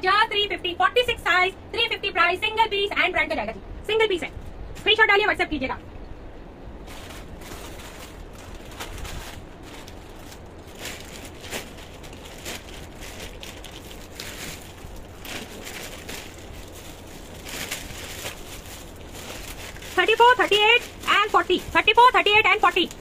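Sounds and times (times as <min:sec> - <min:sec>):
steady low hum: 0:00.0 - 0:23.0
clothing rustling and crinkling: 0:06.8 - 0:23.0.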